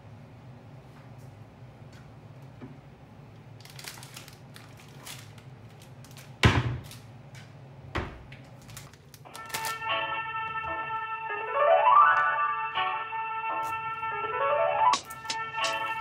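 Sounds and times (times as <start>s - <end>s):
plastic packet rustling: 3.6s - 7.1s, 8.4s - 9.9s.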